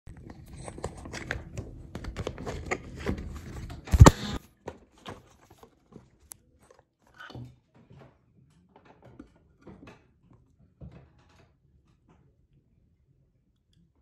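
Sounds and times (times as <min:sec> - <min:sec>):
hand thumping microphone: 0:03.9 - 0:04.4.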